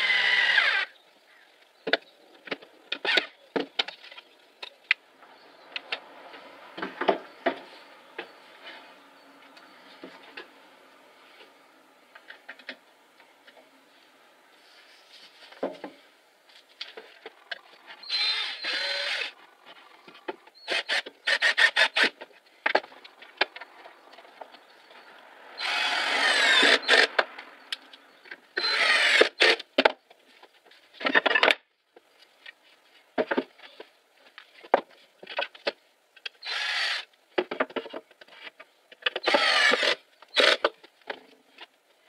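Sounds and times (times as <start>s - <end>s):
cordless drill driving screws: 18.0s - 19.3s, 20.6s - 22.1s, 25.6s - 27.1s, 28.6s - 29.6s, 36.4s - 37.1s, 39.2s - 40.6s.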